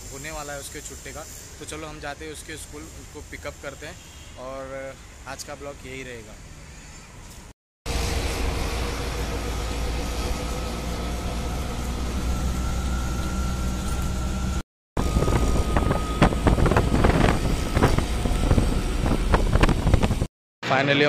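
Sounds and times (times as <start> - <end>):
road noise: 0.0 - 20.3
small engine rumble: 7.9 - 20.3
faint whining tones: 8.0 - 20.1.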